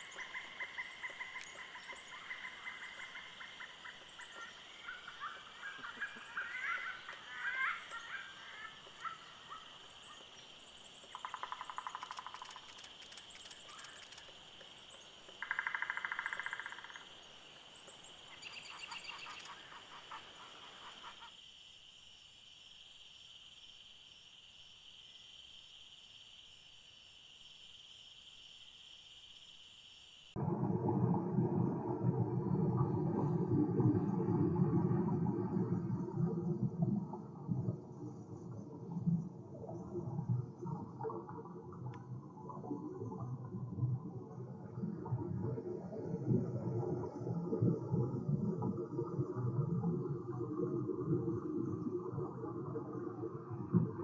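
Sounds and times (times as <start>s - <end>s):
bird rattling calls: 11.2s - 14.3s.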